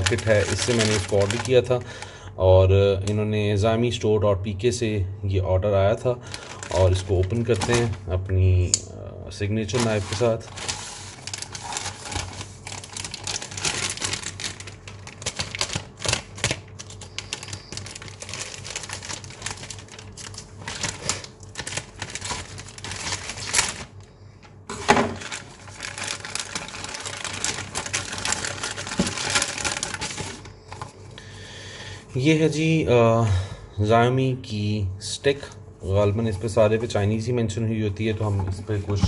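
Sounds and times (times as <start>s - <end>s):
plastic mailer bag crinkling: 0.0s - 2.2s, 6.2s - 8.1s, 9.5s - 31.0s.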